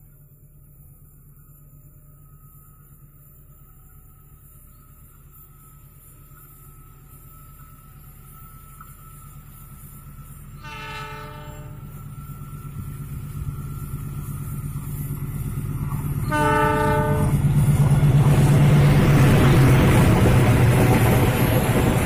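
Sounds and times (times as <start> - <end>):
wheels on rails: 1.0 - 22.0
locomotive engine: 2.5 - 22.0
train horn blasts: 10.6 - 12.0, 16.2 - 17.5.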